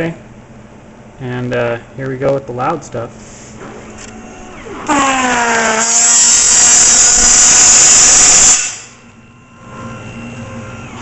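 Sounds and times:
machine hum: 0.0s - 11.0s
plate marker buzzing: 4.8s - 8.9s.

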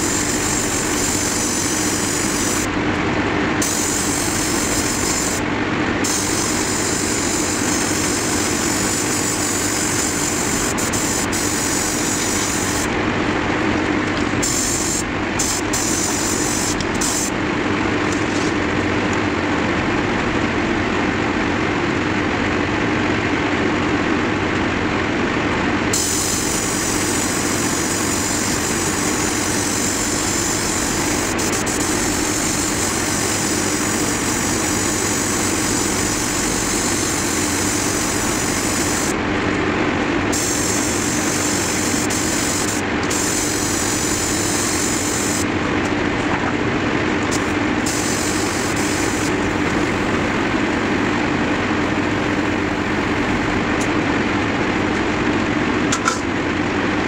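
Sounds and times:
airbrush air hiss: 0.0s - 2.7s, 3.6s - 5.4s, 6.0s - 12.9s, 14.4s - 17.3s, 25.9s - 39.2s, 40.3s - 45.5s, 47.3s - 49.4s
compressor motor hum: 0.0s - 57.0s.

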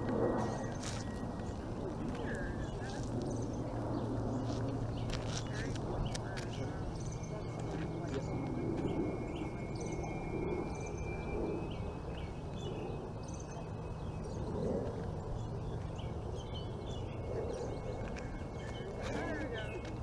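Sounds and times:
bird chirps: 0.2s - 20.0s.

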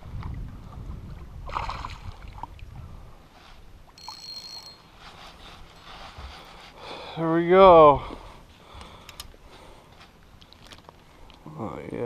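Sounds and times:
water rumbling against hull: 0.0s - 4.0s
fishing reel whir: 4.0s - 5.1s.

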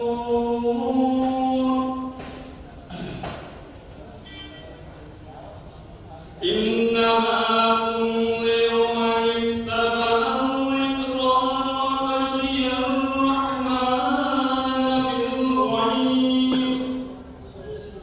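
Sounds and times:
man chanting: 0.0s - 2.2s, 6.4s - 17.3s.

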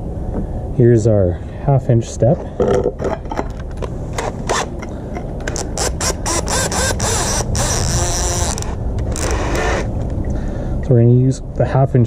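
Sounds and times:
drill chuck ratcheting clicks: 4.2s - 9.9s.

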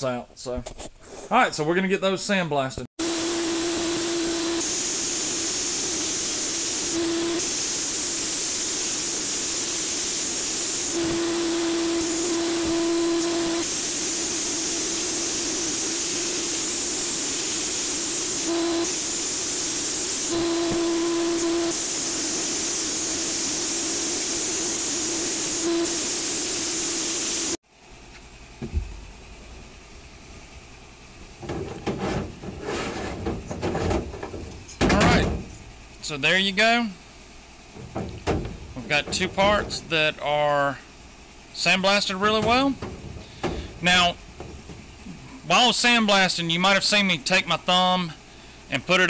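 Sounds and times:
sandblasting gun hissing: 3.0s - 27.6s, 37.6s - 40.9s, 41.6s - 47.0s.

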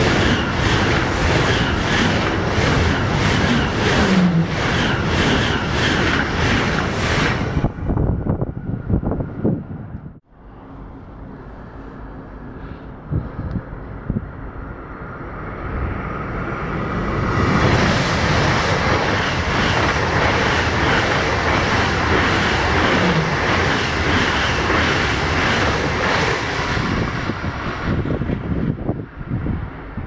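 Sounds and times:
train rushing past: 0.0s - 30.0s.

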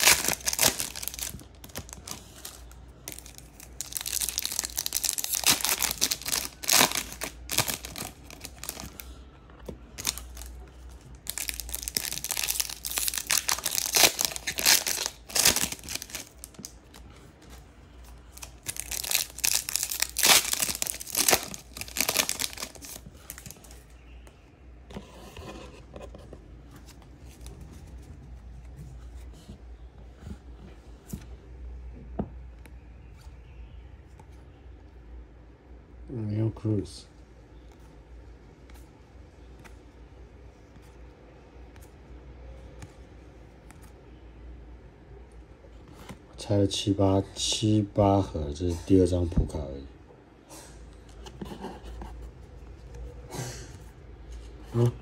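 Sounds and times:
foil wrappers tearing and crinkling: 0.0s - 2.5s, 3.1s - 9.0s, 11.2s - 16.6s, 18.4s - 23.6s.

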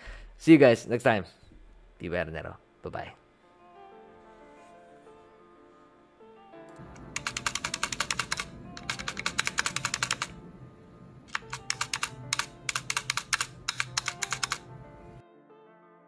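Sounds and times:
mechanical keyboard typing: 6.8s - 10.4s, 11.2s - 14.7s.

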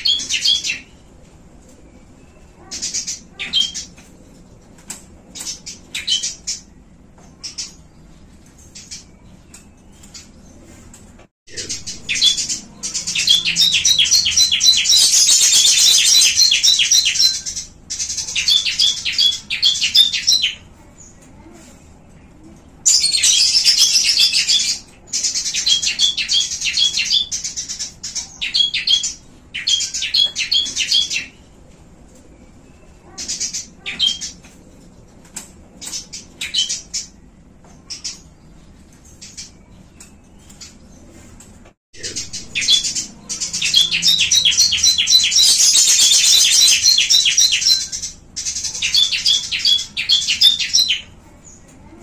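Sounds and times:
small songbirds chirping: 11.5s - 21.3s, 42.0s - 52.0s.

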